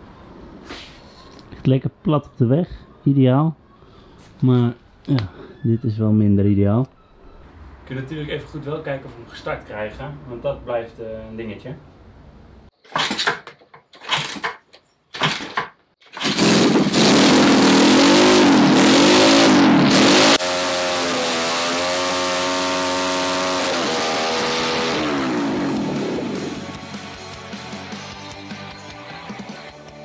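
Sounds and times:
motorcycle engine kick-starting: 12.9s - 14.6s, 15.2s - 17.5s
engine revving: 16.1s - 27.9s.

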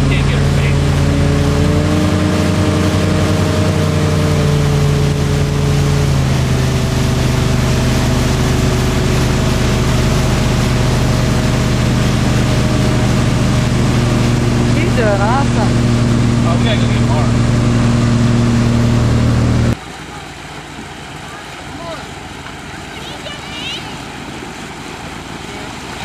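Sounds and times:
motorboat engine running: 0.0s - 26.0s
water rushing: 0.0s - 26.0s
wind: 0.0s - 26.0s.

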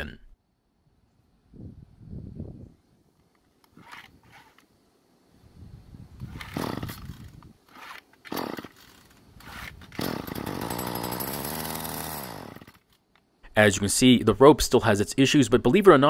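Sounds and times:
starter rope pulls: 3.7s - 4.6s, 6.2s - 13.0s
string trimmer engine running: 6.3s - 12.8s.

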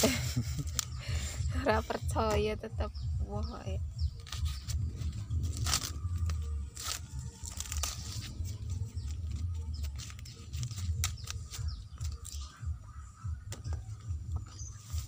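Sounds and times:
low rumble: 0.0s - 14.8s
corn husks crackling and tearing: 4.1s - 12.8s, 13.5s - 15.0s.

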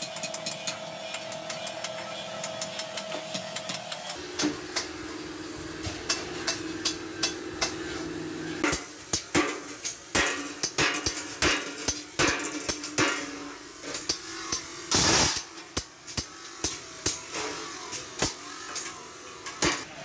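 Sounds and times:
cutting torch hissing: 4.2s - 20.0s.

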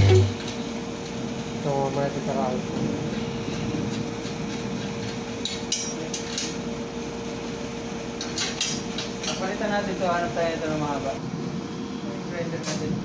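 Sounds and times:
steady hum: 0.0s - 1.6s.

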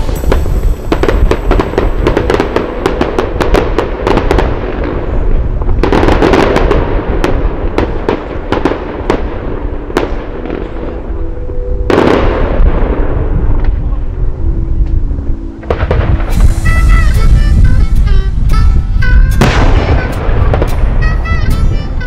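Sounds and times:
fireworks crackling and popping: 0.0s - 11.3s, 15.6s - 22.0s.

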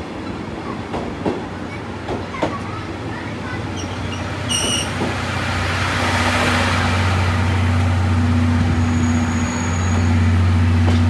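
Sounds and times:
train coaches rolling: 0.0s - 11.0s.

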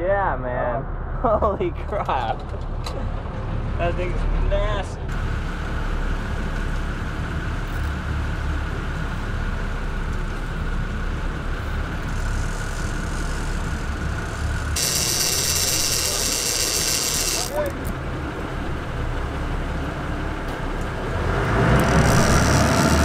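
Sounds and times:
boat engine rumbling: 1.6s - 23.0s
fishing reel whirring: 12.0s - 17.9s, 21.8s - 23.0s.

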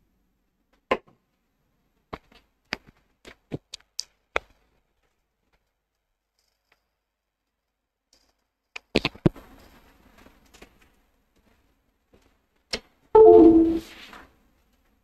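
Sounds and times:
sharp irregular clicks and knocks: 2.1s - 9.3s.

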